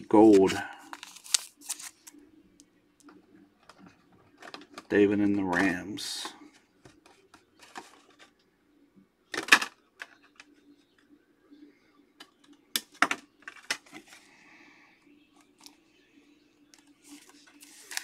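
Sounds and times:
faint steady hum: 0.0s - 18.0s
cards sliding rustle: 0.2s - 2.2s, 16.8s - 18.0s.

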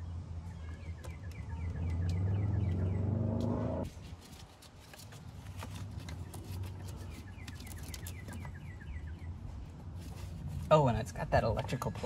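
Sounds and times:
bird chirping: 0.0s - 3.9s, 6.1s - 9.7s
loud low hum: 1.5s - 3.9s.

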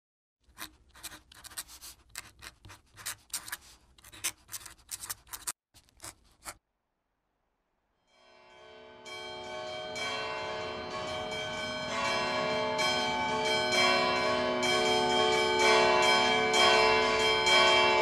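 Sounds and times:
pen scratching on paper: 0.5s - 6.6s
church bells: 8.1s - 18.0s.

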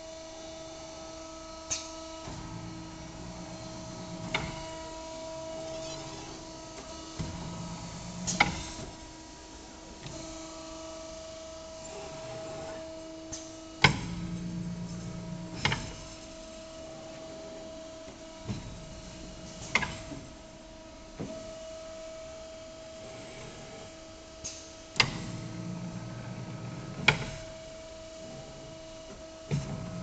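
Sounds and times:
machine hum: 0.0s - 8.9s.

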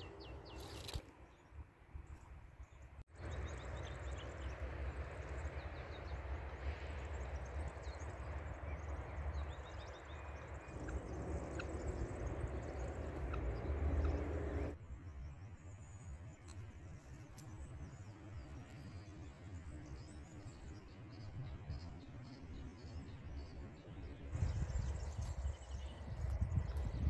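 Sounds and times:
low rumbling noise: 3.2s - 14.8s, 23.4s - 27.0s.

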